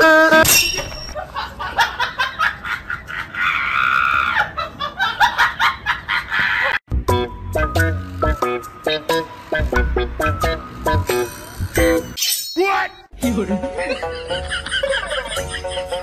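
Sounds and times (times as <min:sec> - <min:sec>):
people laughing: 0:01.2 - 0:06.8, 0:13.2 - 0:16.0.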